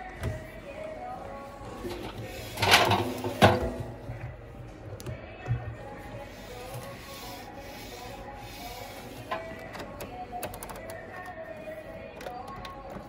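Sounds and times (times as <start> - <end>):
quiet shop background music: 0.0 - 13.0
rubbing and handling noise: 5.6 - 13.0.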